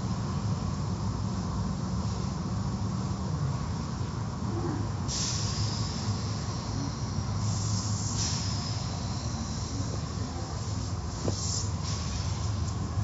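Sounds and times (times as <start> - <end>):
high hiss: 5.1 - 12.8.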